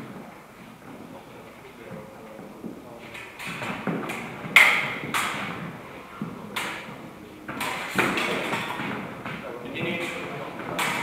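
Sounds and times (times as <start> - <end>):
stamping footwork on hard floor: 3.4 - 11.0.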